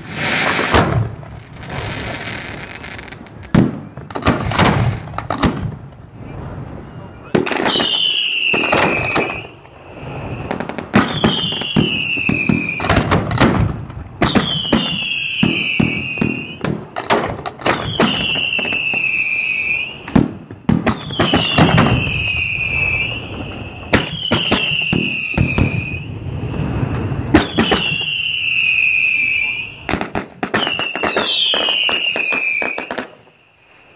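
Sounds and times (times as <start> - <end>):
fireworks bangs and crackle: 0.0 - 33.9
firework whistle falling in pitch: 7.6 - 13.0, 14.2 - 16.7, 17.7 - 20.2, 20.9 - 33.9.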